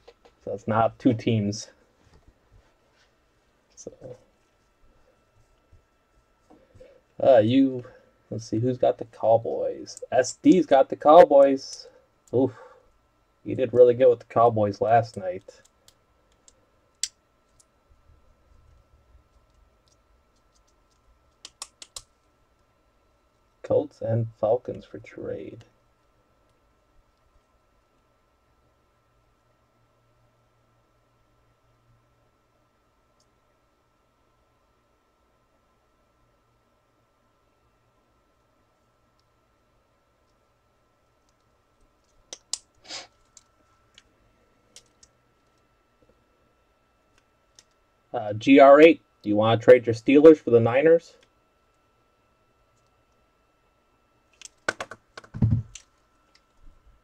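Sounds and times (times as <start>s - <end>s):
faint steady hum: 0.0s - 57.0s
computer keyboard and mouse clicking: 19.4s - 22.1s, 54.3s - 56.4s.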